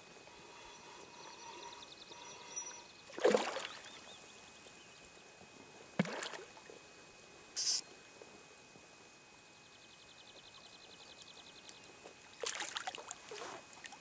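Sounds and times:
water swishing: 0:03.1 - 0:03.9, 0:12.4 - 0:14.0.

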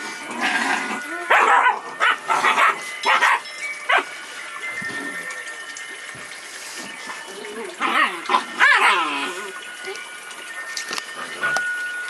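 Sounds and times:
puppies barking: 0:01.0 - 0:04.2, 0:07.7 - 0:09.4.

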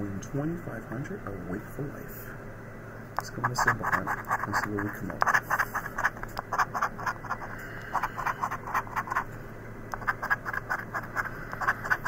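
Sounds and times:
scratch card being scratched: 0:03.4 - 0:09.3, 0:09.9 - 0:12.0.

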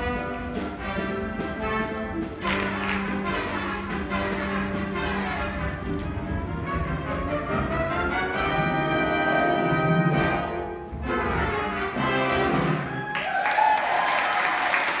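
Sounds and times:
orchestral brass chords: 0:00.0 - 0:13.0
audience applause: 0:02.4 - 0:03.3, 0:12.9 - 0:15.0.

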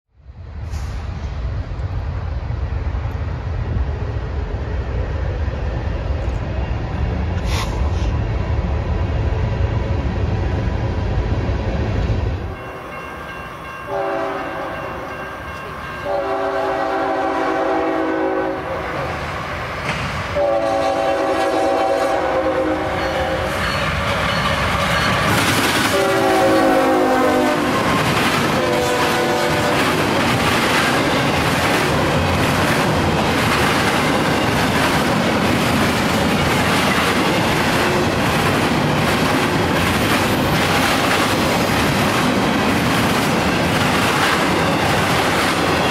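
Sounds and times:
rush of passing train: 0:00.2 - 0:45.9
train rumble: 0:00.2 - 0:45.9
locomotive air horn blasts: 0:13.9 - 0:15.0, 0:16.0 - 0:19.0, 0:20.4 - 0:23.8, 0:25.8 - 0:27.9, 0:28.5 - 0:29.9.

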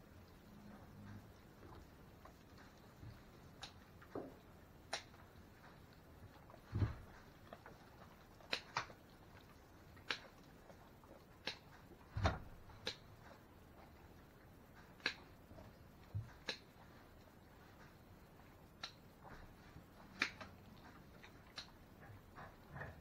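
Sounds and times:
dull thumps: 0:06.6 - 0:07.6, 0:11.9 - 0:12.9.

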